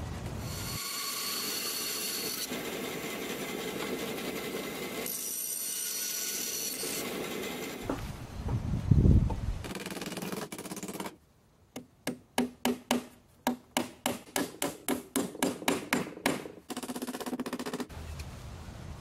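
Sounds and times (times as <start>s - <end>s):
bandsaw cutting wood: 0.5s - 8.0s.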